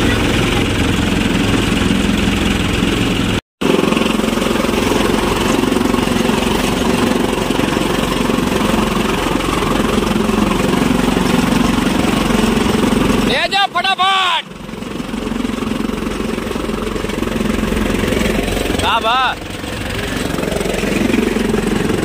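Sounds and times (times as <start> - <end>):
chaff cutter and blower running: 0.0 - 22.0
tractor engine drone: 0.0 - 22.0.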